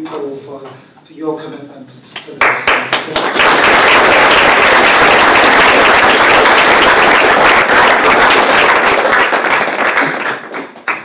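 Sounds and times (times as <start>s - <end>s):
audience applauding: 2.4s - 11.0s.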